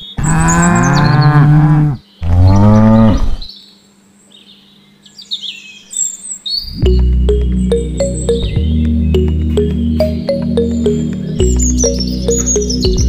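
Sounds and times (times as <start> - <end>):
cow mooing: 0.2 - 3.5.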